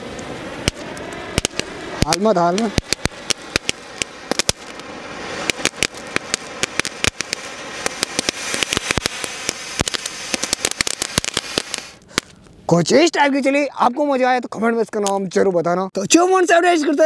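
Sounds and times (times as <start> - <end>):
firework spark jet hissing: 0.0 - 12.5
crackling pops: 0.1 - 12.6, 14.9 - 15.4.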